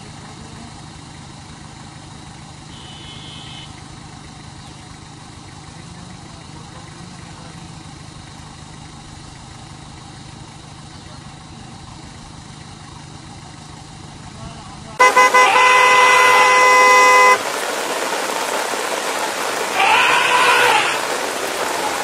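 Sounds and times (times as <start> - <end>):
vehicle engines idling: 0.0 - 22.0.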